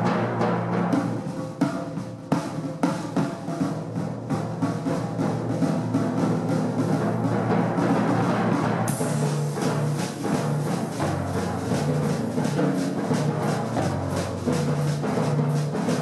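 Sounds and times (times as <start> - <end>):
drum kit strikes: 0.0 - 16.0
timpani low tones: 4.0 - 16.0.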